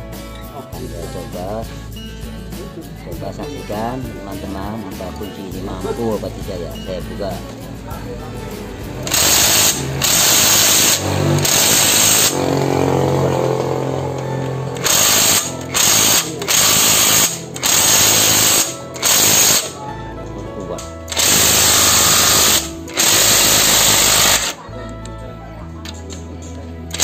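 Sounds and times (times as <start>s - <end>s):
impact wrench bursts: 8.9s - 19.8s, 21.0s - 24.6s.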